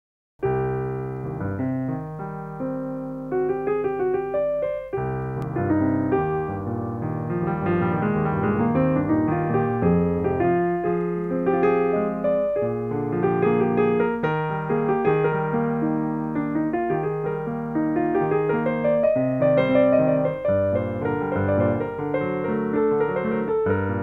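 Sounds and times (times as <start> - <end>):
piano music: 0.4 - 24.0.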